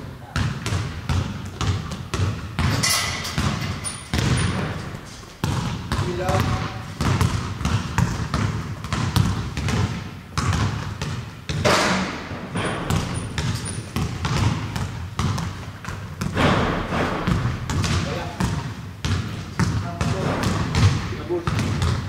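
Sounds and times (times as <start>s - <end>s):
irregular thumps and knocks: 16.2s - 18.2s.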